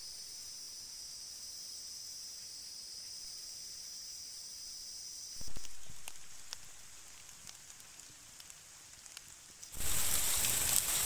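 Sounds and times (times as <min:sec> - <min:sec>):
high-pitched insect chorus: 0:00.0 - 0:07.4, 0:09.6 - 0:11.0
faint hiss: 0:00.0 - 0:11.0
light ticks: 0:05.4 - 0:09.8.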